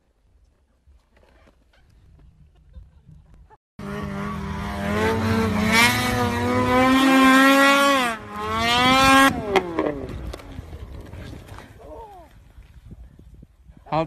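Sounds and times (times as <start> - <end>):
snowmobile engine revving: 3.8 - 11.4.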